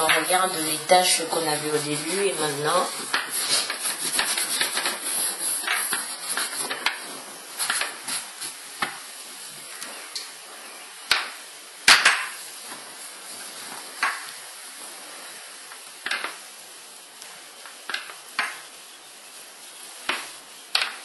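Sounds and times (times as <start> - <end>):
cloth rubbing leather: 1.7 - 8.8.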